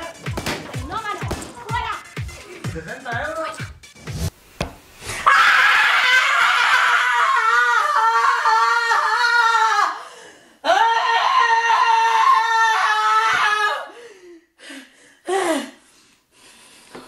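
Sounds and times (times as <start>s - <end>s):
woman screaming: 5.2s - 10.0s, 10.6s - 13.9s.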